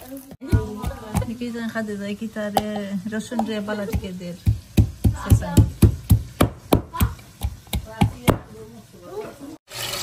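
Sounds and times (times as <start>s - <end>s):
knife chopping on cutting board: 0.4s - 1.4s, 3.4s - 8.5s.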